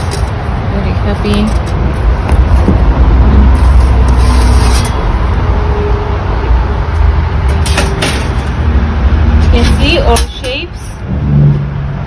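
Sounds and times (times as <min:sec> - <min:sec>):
loud low rumble: 0:01.8 - 0:07.5, 0:10.9 - 0:12.0.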